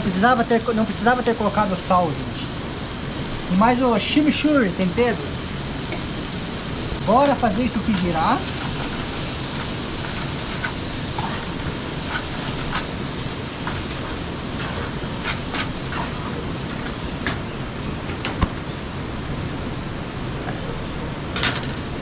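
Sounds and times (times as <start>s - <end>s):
rice sizzling in a pot: 0.0s - 20.0s
metal spoon scraping a pot: 8.5s - 17.0s.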